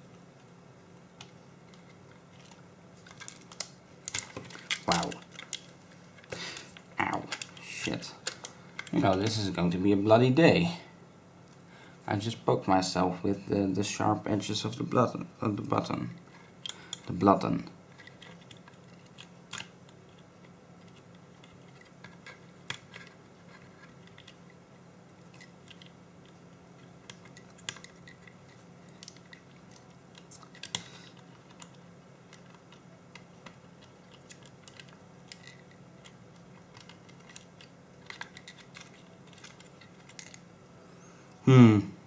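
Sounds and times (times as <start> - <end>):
faint steady hum: 0.0 - 42.0
small clicks of plastic parts: 1.2 - 9.3, 27.0 - 40.4.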